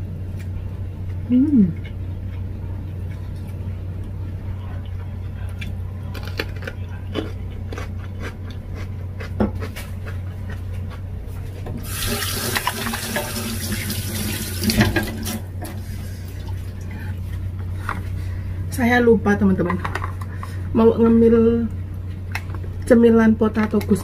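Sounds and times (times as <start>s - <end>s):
faucet running into metal sink: 11.8s - 15.4s.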